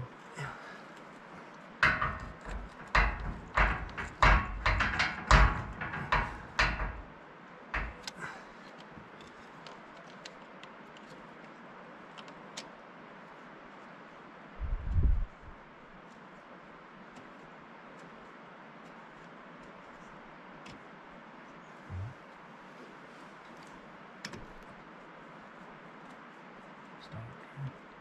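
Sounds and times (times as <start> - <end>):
metal clanks and scraping: 1.8 - 7.1, 7.8 - 8.2.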